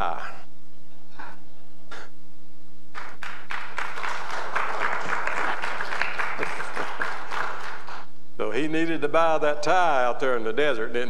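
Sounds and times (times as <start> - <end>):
crowd applauding: 3.0 - 8.1
crowd laughing: 4.4 - 7.9.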